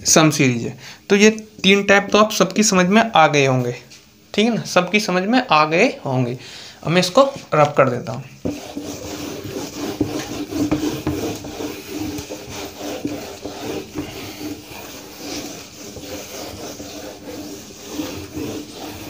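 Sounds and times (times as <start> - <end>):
duster rubbing a whiteboard: 8.4 - 19.0.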